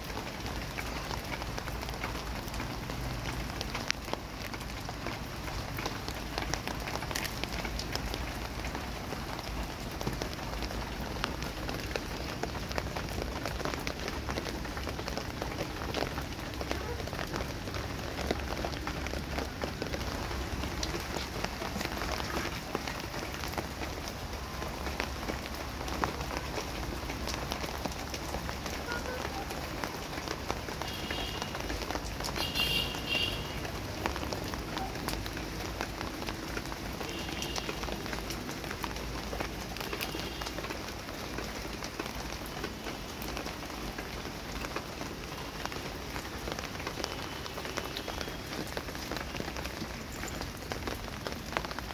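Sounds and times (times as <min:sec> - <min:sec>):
rain on concrete: 0:00.0 - 0:51.9.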